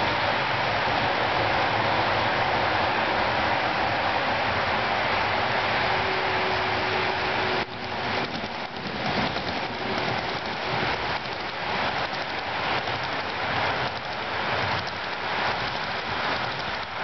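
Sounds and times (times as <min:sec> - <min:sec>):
model train wheels clattering: 0:07.6 - 0:17.0.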